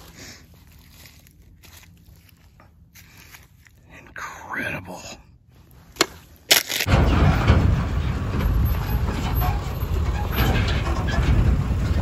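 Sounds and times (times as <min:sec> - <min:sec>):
truck rumbling past: 0:06.9 - 0:12.0.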